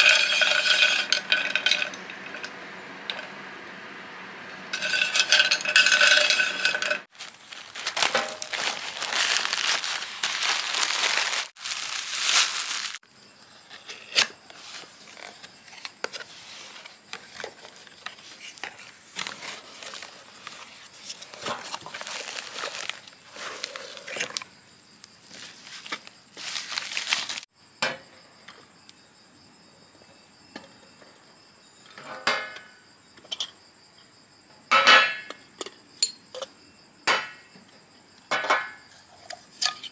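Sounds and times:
glass mug clinking: 4.8s - 7.0s
plastic wrapping crinkling: 7.1s - 13.0s, 18.4s - 24.4s, 25.2s - 27.5s.

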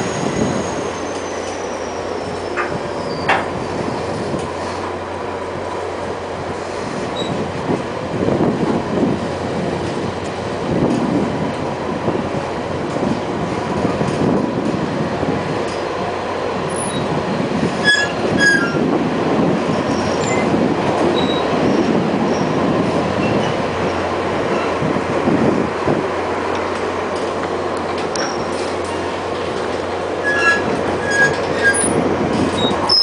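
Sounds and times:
high wheel squeals: 0.0s - 4.0s, 17.8s - 18.8s, 21.2s - 21.5s, 30.2s - 33.0s
train wheels rumbling on rail: 0.0s - 33.0s.

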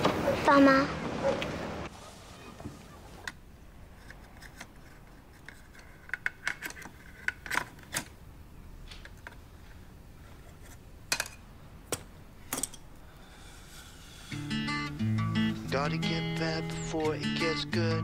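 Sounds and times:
pens rattling and clicking: 3.3s - 8.2s.

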